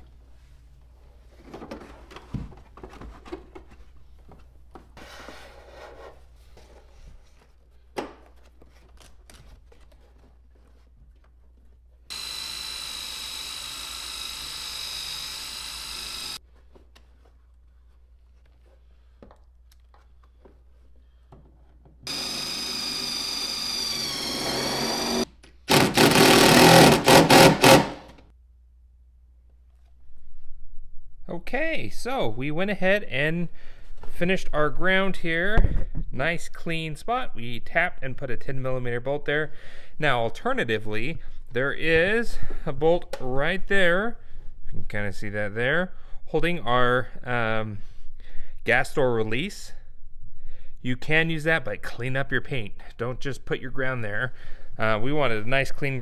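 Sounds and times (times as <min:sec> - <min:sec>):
drill running under load: 0:12.1 - 0:16.4, 0:22.1 - 0:28.1
drill spinning wire brush on metal: 0:12.1 - 0:16.4, 0:22.1 - 0:27.9
rustling and clicks of wires: 0:16.5 - 0:22.0
impact driver hammering bolt: 0:24.3 - 0:28.2.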